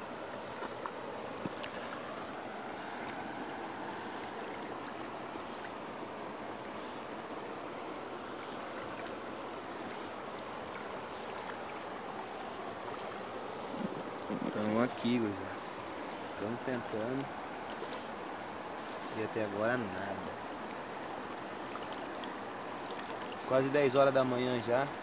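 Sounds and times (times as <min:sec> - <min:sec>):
flowing river water: 0:00.0 - 0:25.0.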